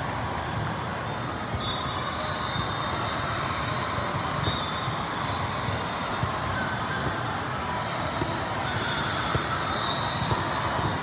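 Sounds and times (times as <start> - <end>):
murmur of many voices: 0.0 - 11.0
volleyballs thudding: 8.1 - 9.6, 10.2 - 11.0.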